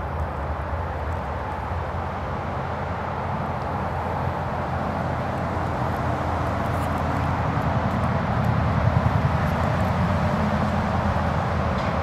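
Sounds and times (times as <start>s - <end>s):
outdoor background rumble and hiss: 0.0s - 12.0s.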